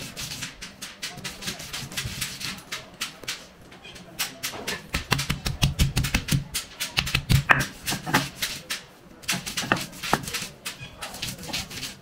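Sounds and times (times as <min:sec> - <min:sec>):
stone pounding and grinding: 0:04.7 - 0:12.0.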